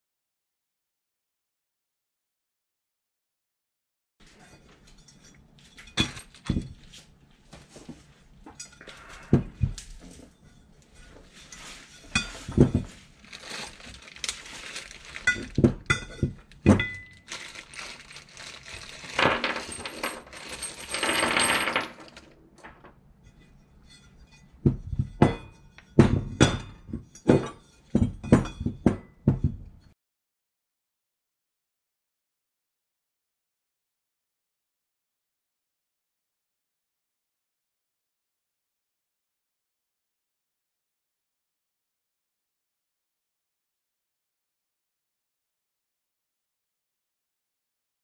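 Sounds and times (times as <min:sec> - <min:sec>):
metal parts clinking on workbench: 0:05.0 - 0:06.8, 0:11.6 - 0:22.9
small metal fittings rattling: 0:13.2 - 0:22.9.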